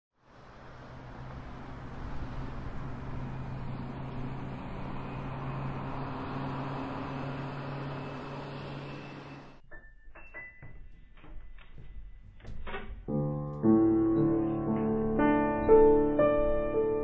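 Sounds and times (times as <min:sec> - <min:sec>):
broad rushing hiss: 0:00.2 - 0:08.9.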